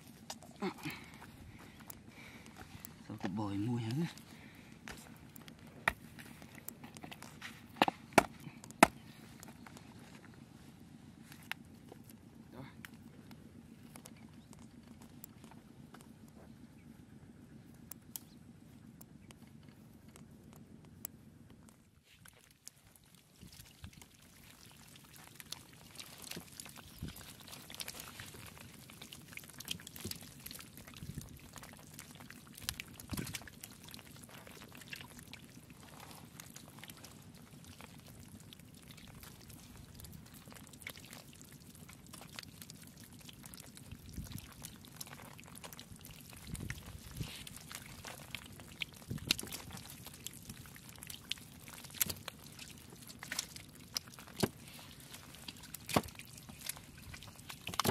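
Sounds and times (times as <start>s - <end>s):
fish flopping on wet mud: 0.0s - 10.4s, 21.8s - 57.9s
water trickling: 22.2s - 57.9s.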